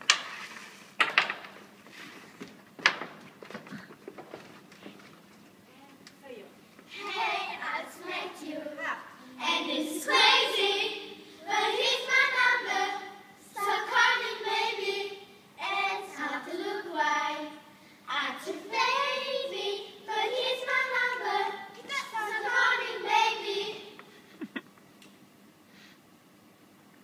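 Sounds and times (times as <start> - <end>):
girls singing together: 6.9 - 24.0.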